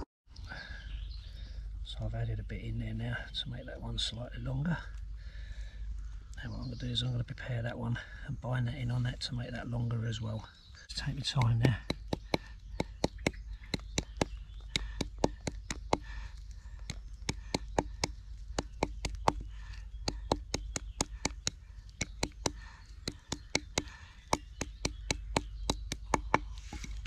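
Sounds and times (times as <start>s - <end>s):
wooden stick tapping plant stem: 11.1s - 27.0s.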